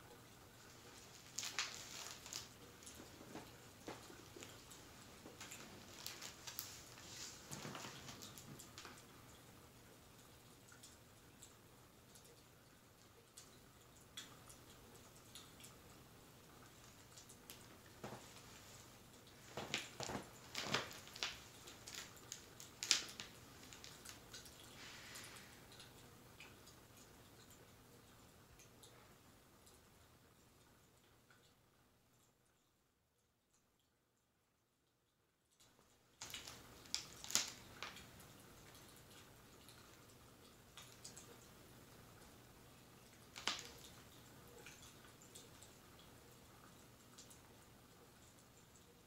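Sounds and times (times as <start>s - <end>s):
fireplace crackling: 0.0s - 32.7s, 35.5s - 49.0s
book pages rustling: 0.9s - 9.0s, 18.0s - 24.2s, 36.2s - 38.0s.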